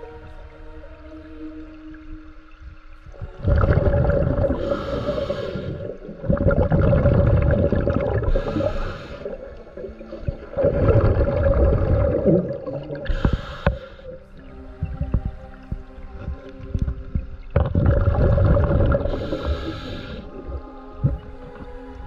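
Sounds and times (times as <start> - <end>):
exhaled air bubbling underwater: 0.0 - 22.0
regulator hiss: 4.6 - 6.2, 8.2 - 10.4, 13.0 - 14.4, 19.0 - 21.2.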